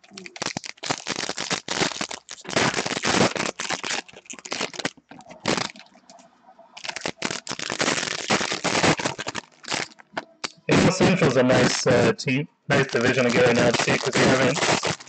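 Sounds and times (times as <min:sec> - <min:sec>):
foil wrapper crackling: 0:00.0 - 0:05.9, 0:06.8 - 0:11.0, 0:12.7 - 0:15.0.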